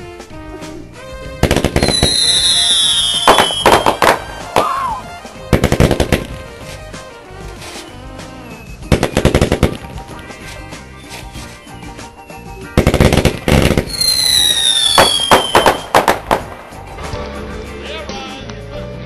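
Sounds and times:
fireworks crackling bangs: 0:01.3 - 0:04.7, 0:05.3 - 0:06.7, 0:08.8 - 0:10.2, 0:12.7 - 0:17.0
fireworks whistling: 0:01.4 - 0:06.3, 0:07.5 - 0:10.0, 0:10.8 - 0:16.5.

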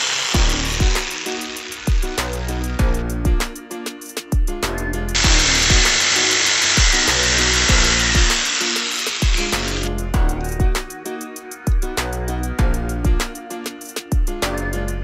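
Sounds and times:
electric jigsaw cutting plywood: 0:00.0 - 0:02.4, 0:05.2 - 0:09.9
background music with steady beat: 0:00.3 - 0:15.0.

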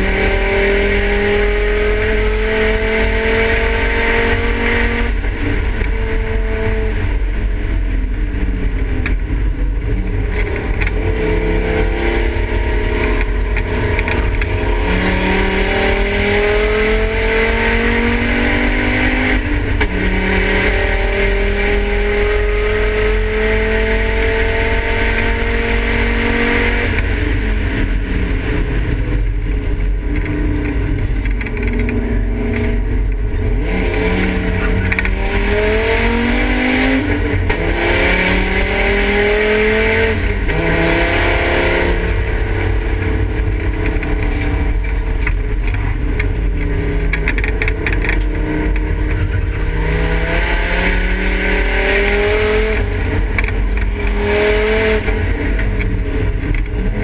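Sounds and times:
race car engine revving: 0:00.0 - 0:57.0
road and wind noise: 0:00.0 - 0:57.0.

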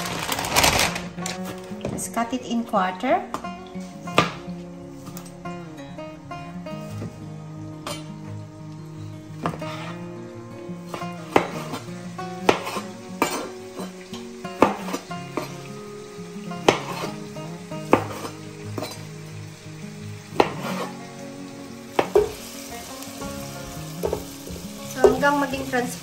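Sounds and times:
onion and garlic sizzling in oil: 0:00.0 - 0:26.0
spatula stirring in pan: 0:09.4 - 0:10.0, 0:10.9 - 0:14.0, 0:14.6 - 0:15.7, 0:16.7 - 0:17.2, 0:17.9 - 0:19.0, 0:20.4 - 0:21.1.

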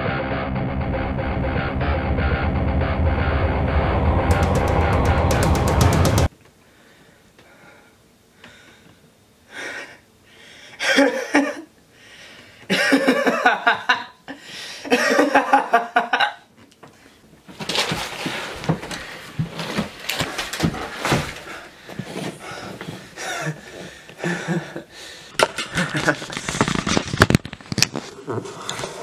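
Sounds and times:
man laughing manically: 0:10.8 - 0:11.7, 0:12.7 - 0:14.2, 0:14.9 - 0:16.4, 0:23.2 - 0:24.9, 0:25.6 - 0:26.4.

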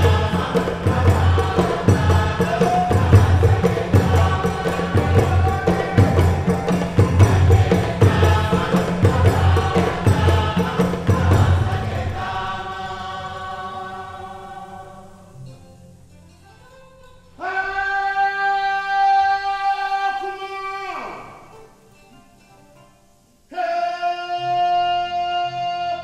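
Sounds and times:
deep drum beat: 0:00.0 - 0:12.4
chorus chanting: 0:00.0 - 0:15.7, 0:17.4 - 0:21.8.

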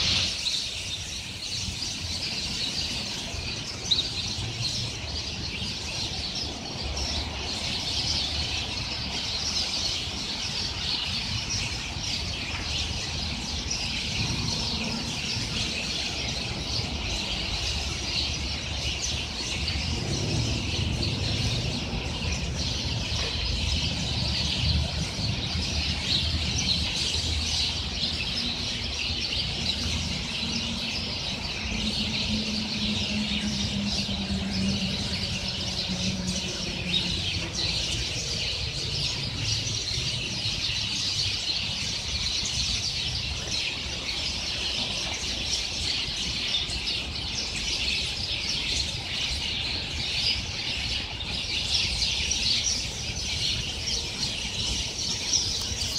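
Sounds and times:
flock of birds chattering: 0:00.0 - 0:55.9.

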